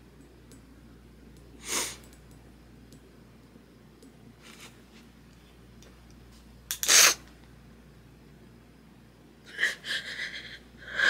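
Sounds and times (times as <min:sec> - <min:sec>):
sharp intake of breath: 0:01.6 - 0:02.0
woman crying: 0:09.5 - 0:11.0.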